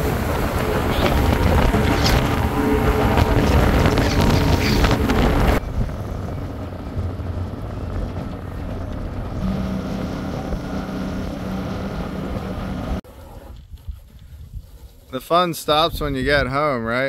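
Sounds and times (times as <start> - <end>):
steady low hum: 0.0 - 13.0
boat engine running: 0.0 - 13.5
hull noise on choppy water: 0.0 - 15.0
wind: 0.0 - 17.0.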